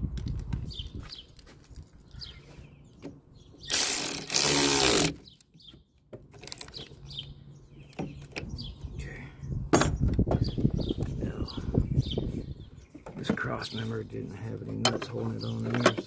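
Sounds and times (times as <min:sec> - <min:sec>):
ratchet wrench turning bolt: 0:03.7 - 0:05.2
tools clicking and knocking: 0:14.8 - 0:16.0.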